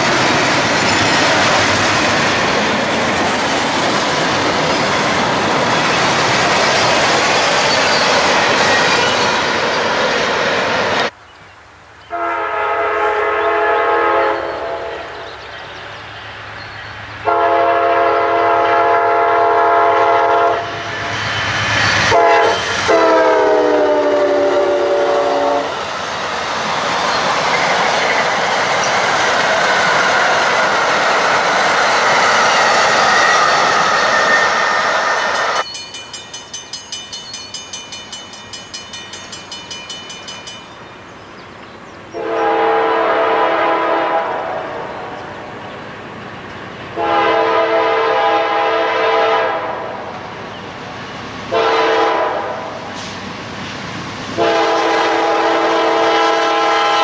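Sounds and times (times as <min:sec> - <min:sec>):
train wheels rushing on rail: 0:00.0 - 0:11.2, 0:12.1 - 0:57.0
locomotive horn blasts: 0:12.1 - 0:15.2, 0:17.2 - 0:20.9, 0:22.1 - 0:25.8, 0:42.2 - 0:44.9, 0:47.0 - 0:50.1, 0:51.5 - 0:52.8, 0:54.4 - 0:57.0
bell ringing rapidly: 0:35.4 - 0:40.8.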